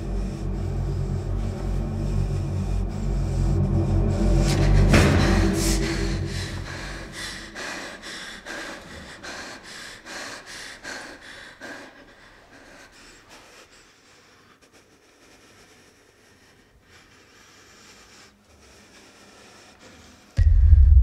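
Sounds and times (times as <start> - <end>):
low rumble: 0.0 - 8.6, 20.4 - 21.0
woman breathing hard: 0.0 - 20.4.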